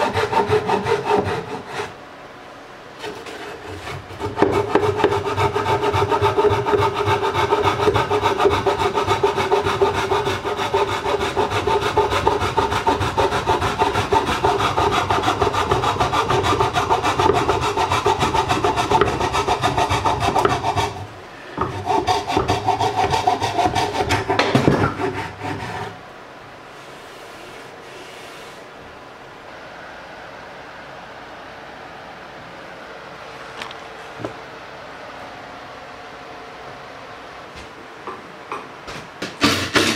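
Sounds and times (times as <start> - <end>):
handsaw cutting wood: 0.0 - 2.0, 3.0 - 26.0, 39.4 - 39.9.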